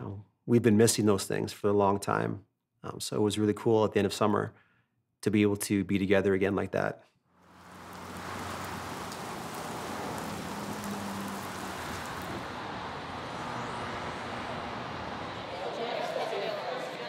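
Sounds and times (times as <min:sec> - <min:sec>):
outdoor ambience hiss: 0:07.4 - 0:15.5.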